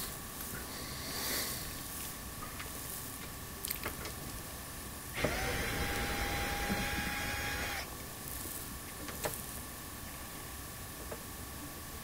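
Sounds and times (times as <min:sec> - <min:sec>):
cordless drill running: 0:05.1 - 0:07.9.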